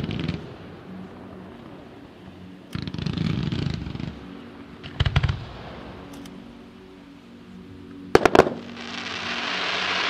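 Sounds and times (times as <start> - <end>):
fireworks crackling: 0.0 - 1.9, 2.7 - 4.2, 8.2 - 10.0
fireworks bangs: 8.2 - 10.0.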